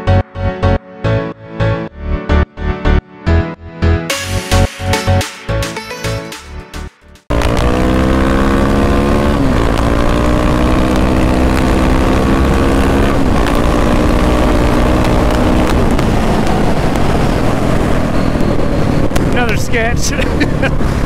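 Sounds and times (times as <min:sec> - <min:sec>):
dirt bike engine revving: 0:07.3 - 0:18.1
steady rushing noise: 0:14.1 - 0:21.0.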